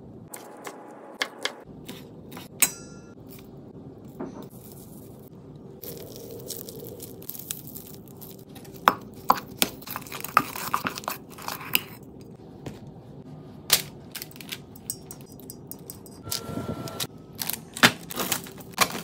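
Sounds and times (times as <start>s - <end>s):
soft scraping and squishing: 3.2s - 14.7s
utensil clinking on metal bowl: 14.2s - 16.2s.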